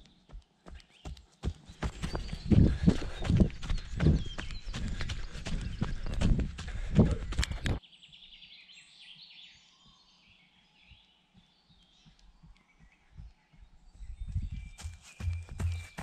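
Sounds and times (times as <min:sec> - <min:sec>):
small birds chirping: 0:00.0 - 0:16.0
faint soft footfalls: 0:11.9 - 0:16.0
runner's footfalls: 0:14.3 - 0:16.0.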